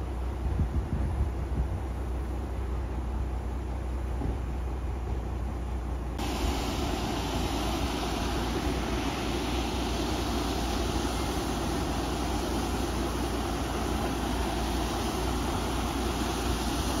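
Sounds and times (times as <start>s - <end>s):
gas rushing hiss: 6.2s - 17.0s.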